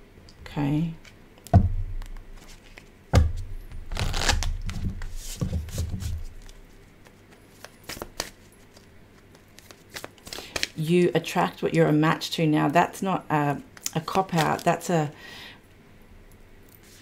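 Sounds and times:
cards being shuffled: 0:02.0 - 0:10.8.

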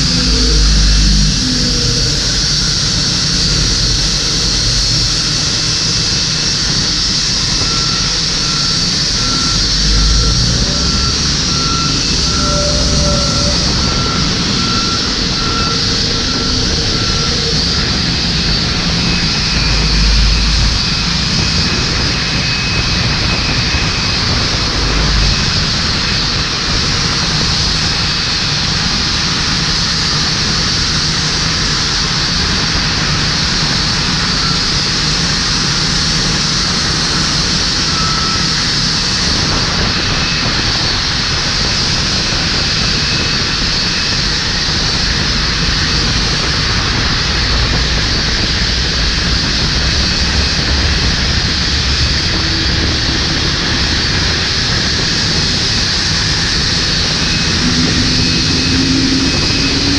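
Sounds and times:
jet engines whining: 0:00.0 - 0:59.9
low rumbles: 0:00.0 - 0:59.9.

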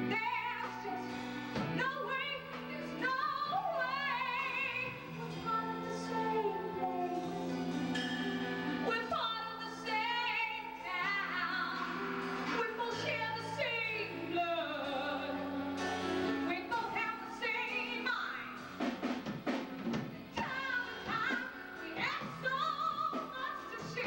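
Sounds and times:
woman singing with vibrato: 0:00.0 - 0:07.8, 0:08.6 - 0:18.8, 0:20.2 - 0:24.0
live band with bass notes: 0:17.6 - 0:24.0.

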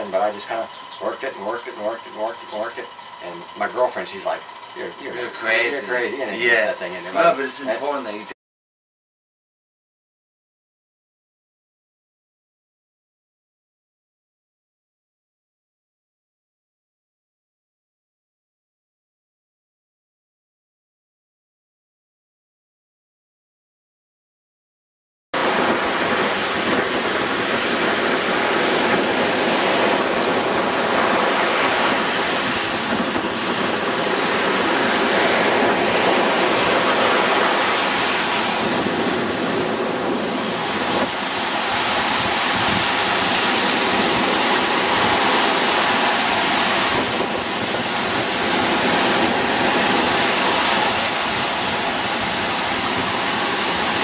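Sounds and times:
ocean waves breaking: 0:25.4 - 0:54.0.

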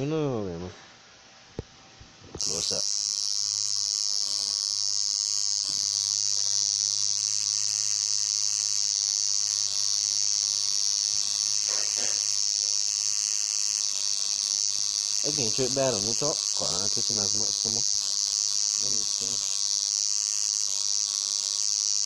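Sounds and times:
tattoo machine buzzing: 0:02.4 - 0:22.0.

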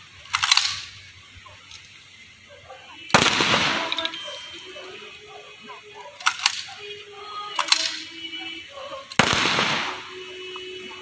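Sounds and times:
short sharp rifle clicks: 0:00.2 - 0:01.0, 0:06.2 - 0:06.8, 0:07.6 - 0:08.1, 0:09.1 - 0:10.2
rifle volley crack: 0:02.6 - 0:11.0.

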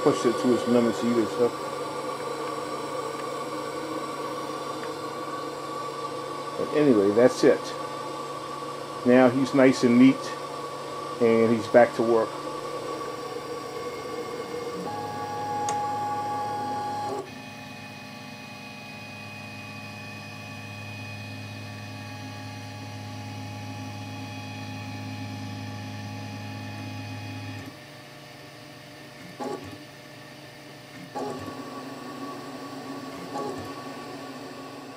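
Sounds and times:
stepper motors whining: 0:00.0 - 0:17.4.

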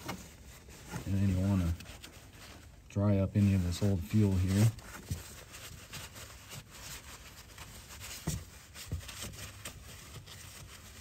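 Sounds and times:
towel rubbing and rustling: 0:00.0 - 0:11.0.

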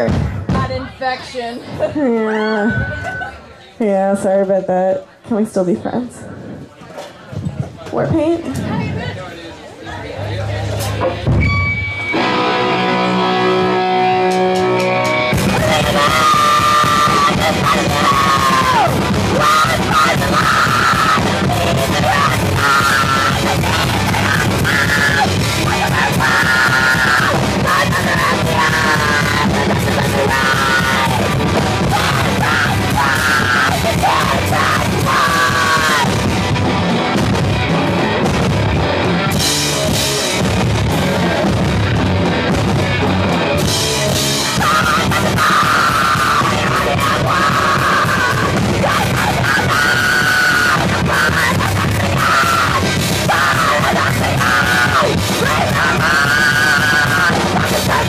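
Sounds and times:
punk rock band playing: 0:10.4 - 0:58.0
electric guitar: 0:10.6 - 0:58.0
singer yelling vocals: 0:15.2 - 0:36.3, 0:44.0 - 0:58.0.

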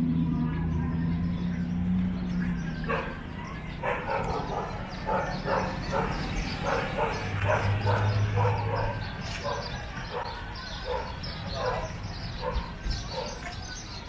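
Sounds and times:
dog barking: 0:02.8 - 0:13.4.

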